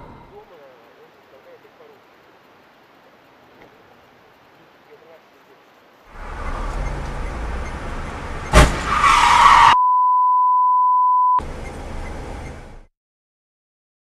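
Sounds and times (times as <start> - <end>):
road and engine noise: 0.0 - 9.8, 11.2 - 12.9
loud collision bang: 8.5 - 9.0
censor bleep: 9.7 - 11.4.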